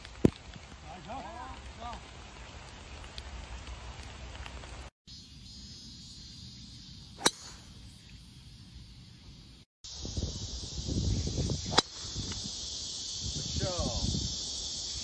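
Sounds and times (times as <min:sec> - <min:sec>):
faint outdoor background: 0:00.0 - 0:15.0
golf club striking ball: 0:07.2 - 0:07.7.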